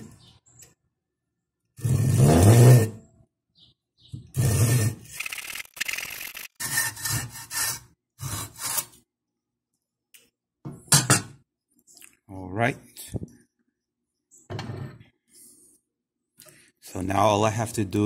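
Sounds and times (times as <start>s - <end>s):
hand saw cutting wood: 6.5s - 9.0s.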